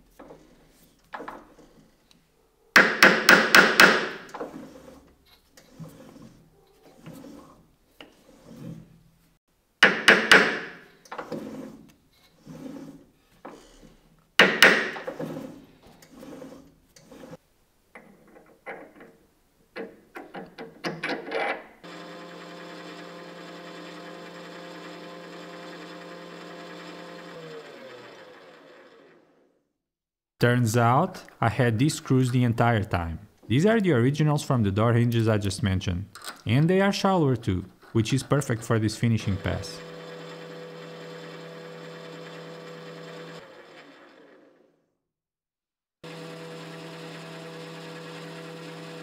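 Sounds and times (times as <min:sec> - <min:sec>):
hammer tapping metal: 0:02.8 - 0:04.2
metal lathe humming: 0:21.8 - 0:29.2, 0:39.2 - 0:44.5, 0:46.1 - 0:49.0.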